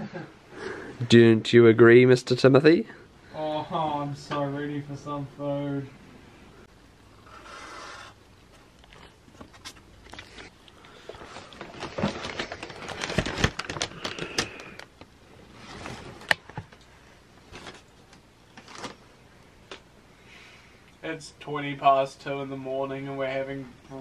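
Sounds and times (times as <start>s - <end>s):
paper bag crinkling: 8.7s - 15.0s, 18.6s - 19.0s.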